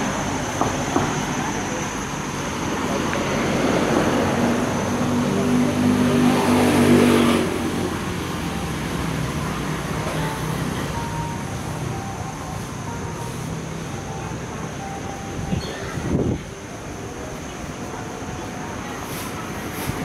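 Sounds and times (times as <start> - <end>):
vehicle engine passing close: 0.0 - 12.0
street traffic: 0.0 - 20.0.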